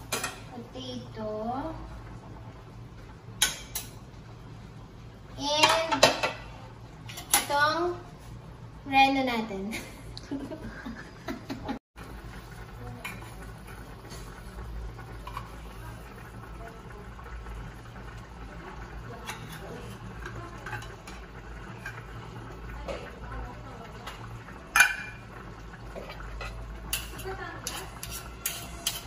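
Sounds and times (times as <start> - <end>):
stew simmering: 0.0 - 29.0
metal spoon scraping tin can: 27.1 - 29.0.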